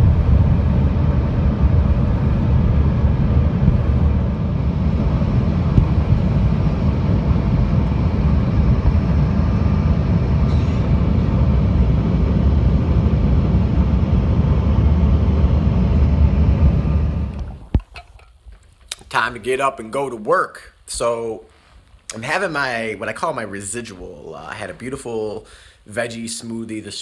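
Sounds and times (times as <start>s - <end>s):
airliner cabin engine rumble: 0.0s - 17.8s.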